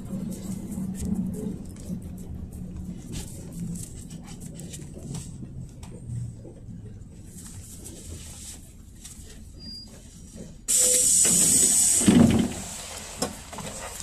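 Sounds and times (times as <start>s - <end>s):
compressed air hissing from bus: 10.7s - 14.0s.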